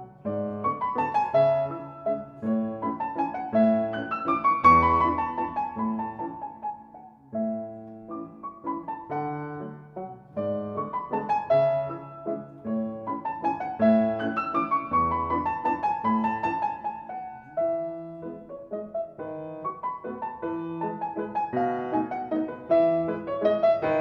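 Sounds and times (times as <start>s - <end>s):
solo piano music: 0.0s - 24.0s.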